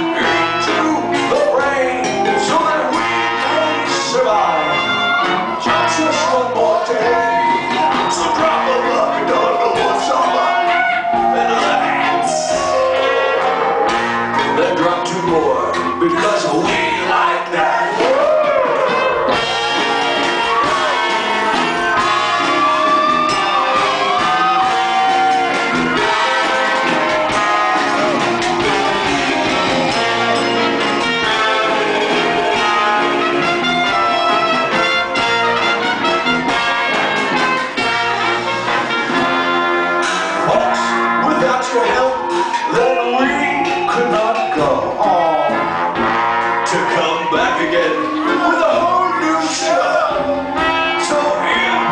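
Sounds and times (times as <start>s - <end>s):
live band playing: 0.0s - 51.9s.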